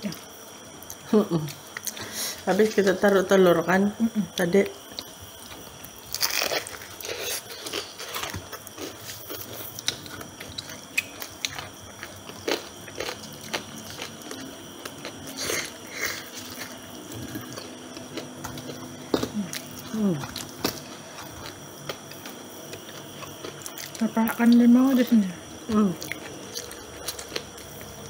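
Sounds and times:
fried chicken crunching: 6.0s - 24.0s.

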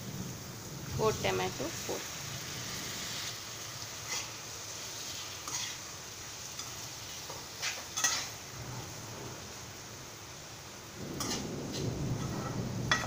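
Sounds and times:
tomatoes sizzling in a pan: 0.0s - 13.0s
metal spoon clinking on pan: 8.0s - 8.3s, 12.2s - 13.0s.

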